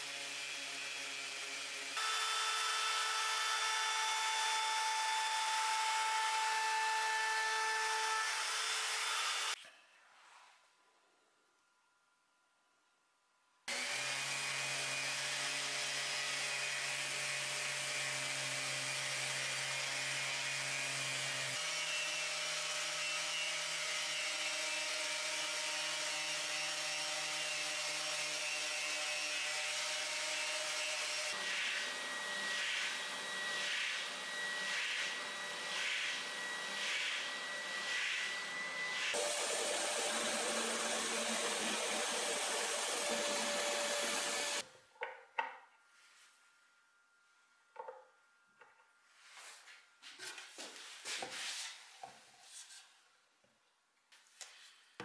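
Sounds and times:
drill press boring wood: 0:00.0 - 0:09.6, 0:13.7 - 0:44.6
orbital sander on wood: 0:00.0 - 0:09.6, 0:13.7 - 0:44.6
shop vacuum running: 0:00.0 - 0:09.6, 0:30.4 - 0:44.6.

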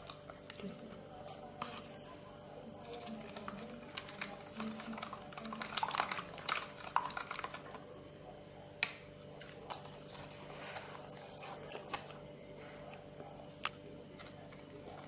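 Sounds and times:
plastic spoon stirring in bowl: 0:00.0 - 0:15.0.

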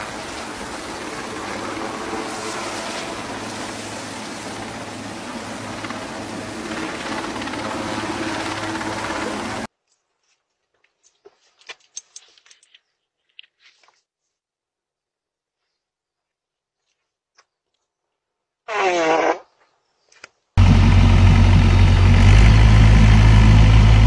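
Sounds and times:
helicopter rotor and turbine din: 0:00.0 - 0:09.7, 0:20.6 - 0:24.0
rushing downwash: 0:00.0 - 0:09.7
faint clicks and rustles: 0:09.8 - 0:14.4.

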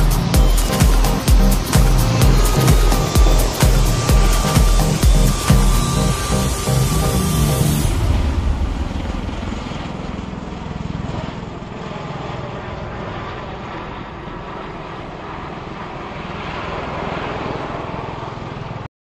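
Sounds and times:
helicopter rotor and turbine drone: 0:00.0 - 0:18.9.

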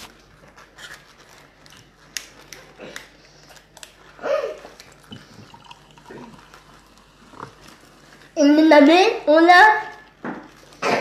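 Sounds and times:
cola pouring into a mug: 0:04.8 - 0:08.3.

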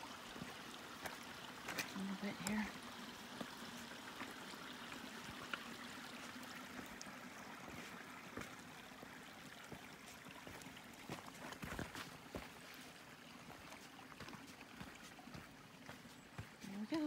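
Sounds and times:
creek running over rocks: 0:00.0 - 0:17.0
footsteps on rock and gravel: 0:09.7 - 0:17.0.

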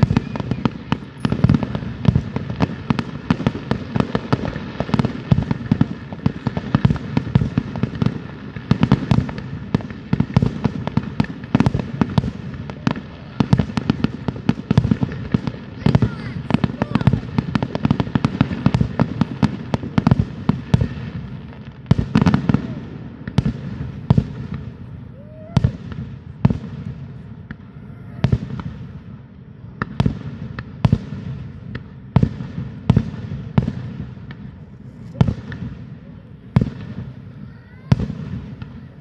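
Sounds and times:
echoing firework booms: 0:00.0 - 0:39.0
fireworks bangs and crackles: 0:00.0 - 0:39.0.

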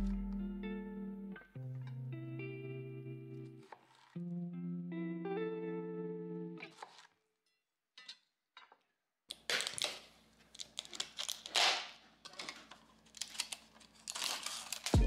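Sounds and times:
plastic lid crinkling and clicking: 0:08.0 - 0:13.6.

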